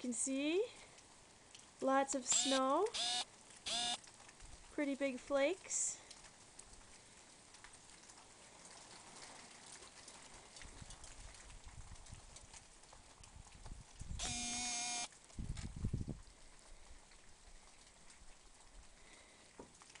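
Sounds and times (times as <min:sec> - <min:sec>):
wet snow pattering on leaves: 0:00.8 - 0:20.0.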